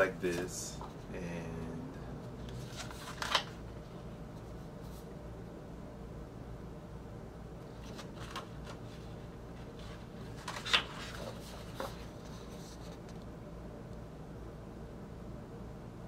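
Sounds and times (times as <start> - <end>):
paper pages rustling: 2.4 - 5.1, 7.6 - 13.2.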